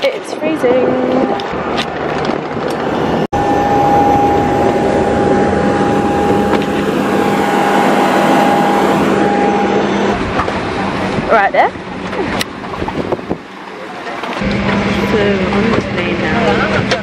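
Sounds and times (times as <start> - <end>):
auxiliary power unit whine: 2.7 - 11.4, 14.4 - 17.0
two steady tones: 3.4 - 10.3.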